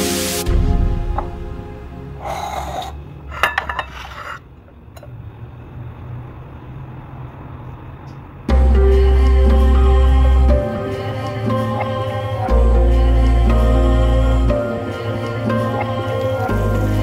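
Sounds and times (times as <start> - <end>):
background music: 0.0 - 3.7, 8.5 - 17.0.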